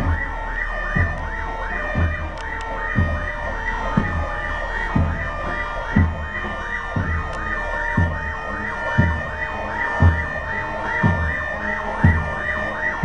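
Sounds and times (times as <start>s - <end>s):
fire engine sirens yelping: 0.0s - 13.0s
deep thump: 3.9s - 13.0s.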